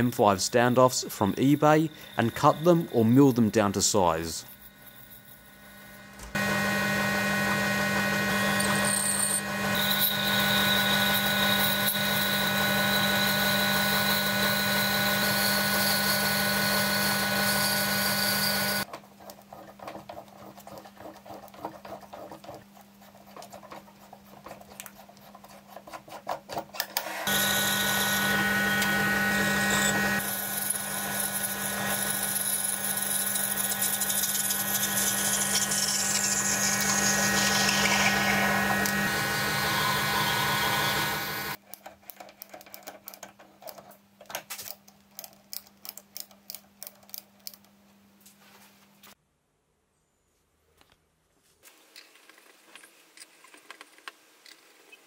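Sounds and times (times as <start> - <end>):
lathe motor humming: 5.8 - 18.9, 27.2 - 41.6.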